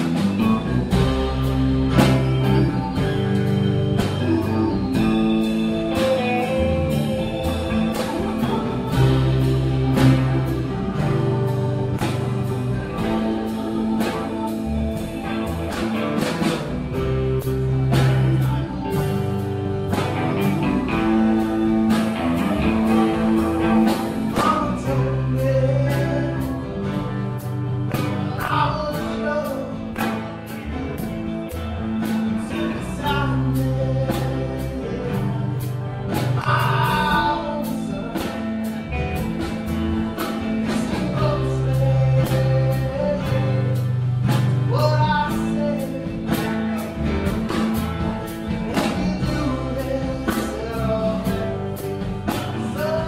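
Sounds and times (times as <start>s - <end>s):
person singing: 0.0s - 30.8s, 31.4s - 53.0s
guitar chords: 0.0s - 53.0s
steady drum beat: 0.0s - 53.0s.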